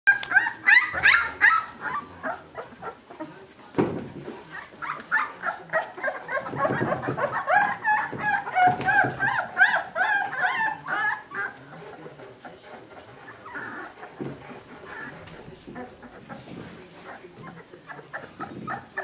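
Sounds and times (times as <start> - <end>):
puppies whimpering: 0.1 - 19.0.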